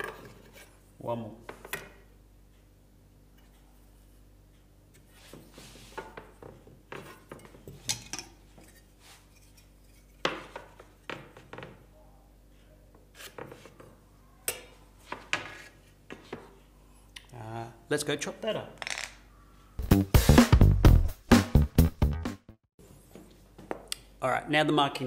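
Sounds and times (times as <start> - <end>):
tools and timber knocking on workbench: 10.2 - 11.8.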